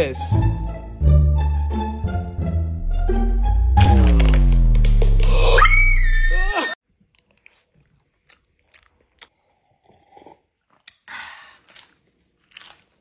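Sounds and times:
chewing and crunching food: 0:06.9 - 0:13.0.

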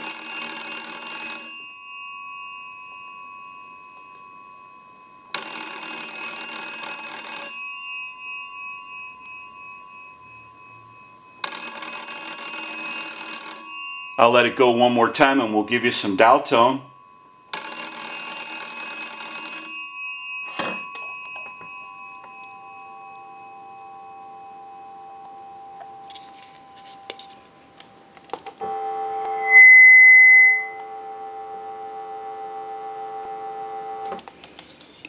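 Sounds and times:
telephone bells ringing: 0:00.0 - 0:15.4, 0:16.2 - 0:27.0, 0:28.6 - 0:34.1
dial tone: 0:23.9 - 0:27.1, 0:28.6 - 0:34.1
loud high beep: 0:29.4 - 0:30.8.

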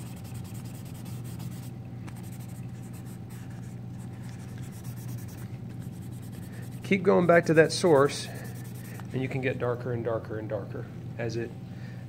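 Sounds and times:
paper rubbing on paper: 0:00.0 - 0:07.0, 0:07.7 - 0:09.1
steady low hum: 0:00.0 - 0:12.0.

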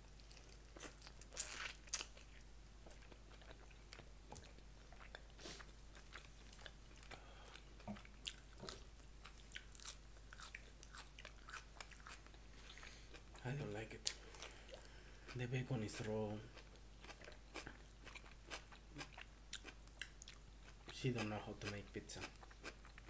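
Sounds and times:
person chewing crunchy food: 0:00.1 - 0:13.4, 0:14.0 - 0:15.4, 0:16.5 - 0:20.9, 0:21.6 - 0:23.0.

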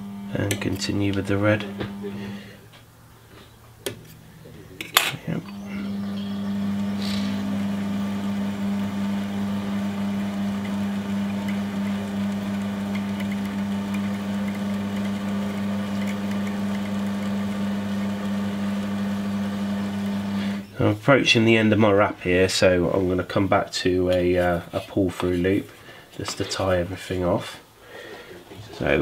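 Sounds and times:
electric motor humming: 0:00.0 - 0:02.8, 0:05.3 - 0:20.6.

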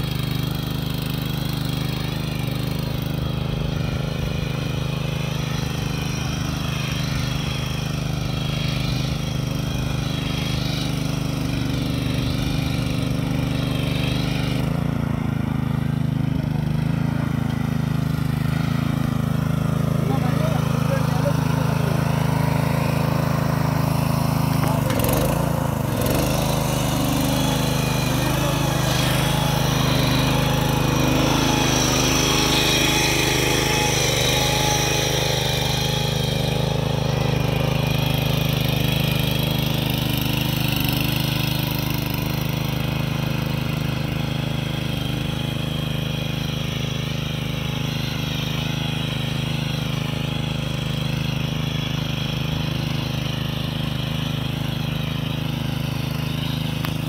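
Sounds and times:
small engine running under load: 0:00.0 - 0:57.0.

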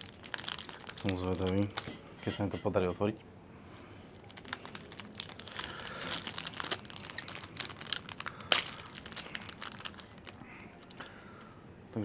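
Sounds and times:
packaging crinkling and tearing: 0:00.0 - 0:02.0, 0:04.1 - 0:11.1.

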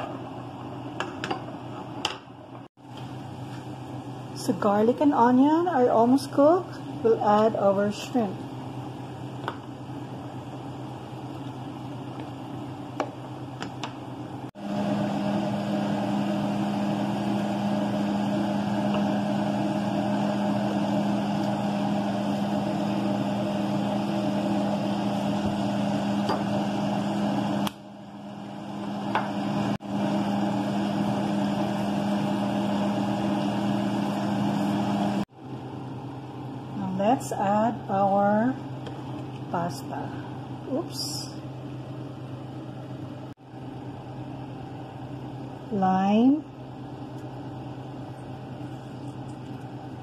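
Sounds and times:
electric motor hum: 0:14.1 - 0:35.3.

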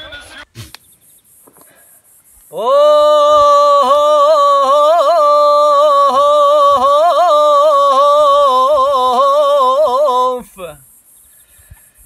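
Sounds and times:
man singing unaccompanied: 0:00.0 - 0:00.6, 0:02.5 - 0:10.8.

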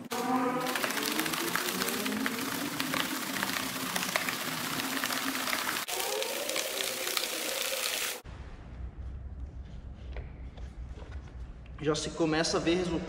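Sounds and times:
water and rice rattling in plastic: 0:00.1 - 0:07.4.

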